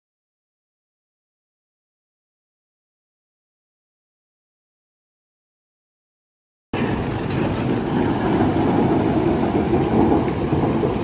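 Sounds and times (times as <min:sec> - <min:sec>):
floodwater rushing: 0:06.8 - 0:11.0.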